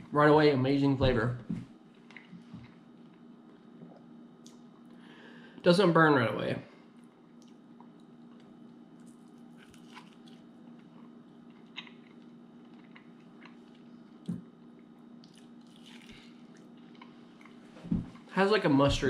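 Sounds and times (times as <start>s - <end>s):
steady low hum: 0.0s - 19.0s
faint chewing: 1.9s - 5.0s, 6.9s - 18.3s.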